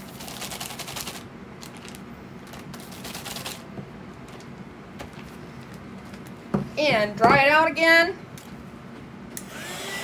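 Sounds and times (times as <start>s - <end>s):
plastic bag crinkling: 0.0s - 3.6s.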